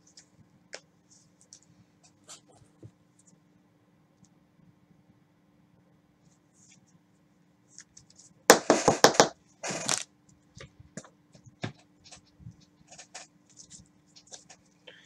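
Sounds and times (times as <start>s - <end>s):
cards scraping and rustling: 7.8s - 10.1s, 12.9s - 14.7s.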